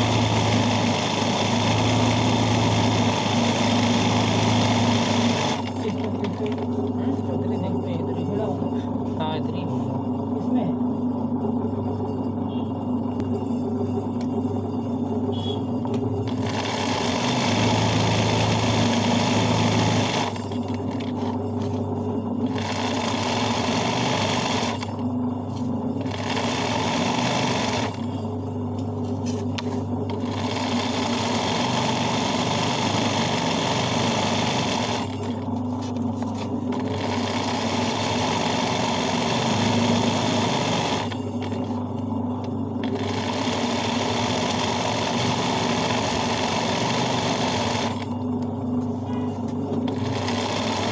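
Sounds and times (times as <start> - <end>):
sewing machine stitching: 0.0 - 6.7, 16.3 - 21.3, 22.4 - 25.0, 26.0 - 28.1, 30.1 - 35.4, 36.7 - 41.6, 42.8 - 48.1, 49.8 - 50.9
steady low hum: 5.6 - 16.7, 19.6 - 23.1, 24.6 - 31.0, 34.9 - 37.2, 41.0 - 43.3, 47.9 - 50.3.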